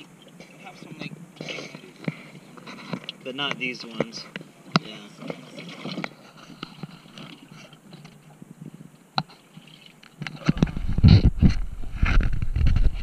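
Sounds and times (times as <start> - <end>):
wind buffeting microphone: 10.5 - 13.0.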